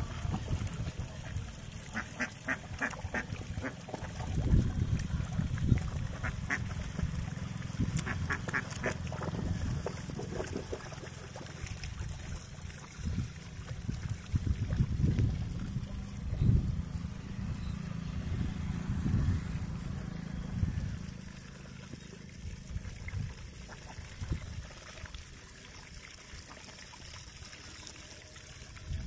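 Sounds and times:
ducks quacking: 0:01.2 - 0:04.1, 0:06.2 - 0:06.8, 0:08.0 - 0:09.0
steady low rumble: 0:11.9 - 0:21.4.

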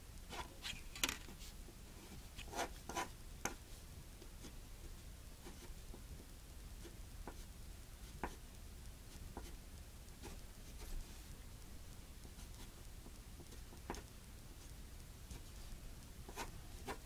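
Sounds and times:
low steady hum: 0:00.0 - 0:17.0
pencil scratching on paper: 0:02.1 - 0:03.6.

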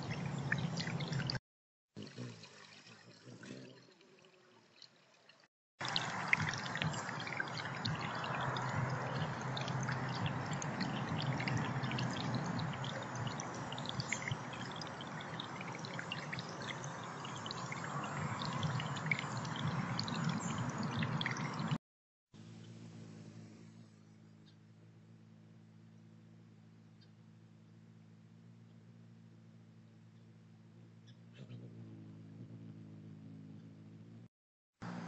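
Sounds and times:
fountain water gurgling: 0:00.0 - 0:01.4, 0:02.0 - 0:05.1, 0:05.8 - 0:21.8
water drips and splashes: 0:00.0 - 0:01.4, 0:02.0 - 0:21.8.

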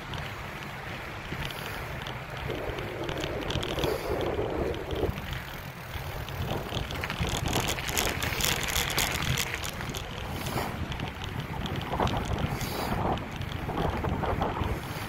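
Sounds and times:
low road rumble: 0:00.0 - 0:15.0
wind rushing over microphone: 0:00.0 - 0:15.0
tyre hiss on wet road: 0:12.5 - 0:13.0.

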